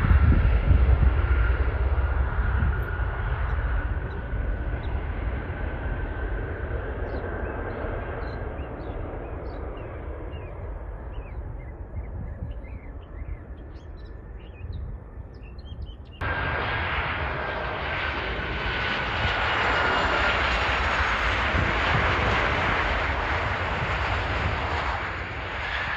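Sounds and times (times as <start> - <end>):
distant jet taking off: 0.0 - 25.9
jet engines whining: 0.0 - 25.9
birds chirping: 2.9 - 16.2.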